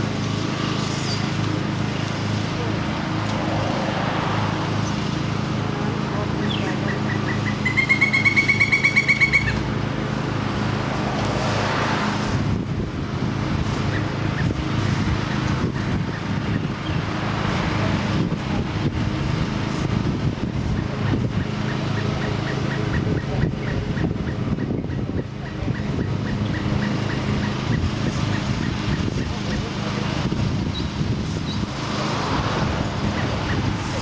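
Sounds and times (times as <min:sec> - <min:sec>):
road traffic rumble: 0:00.0 - 0:34.0
woodpecker calling: 0:06.4 - 0:09.7, 0:20.7 - 0:29.7.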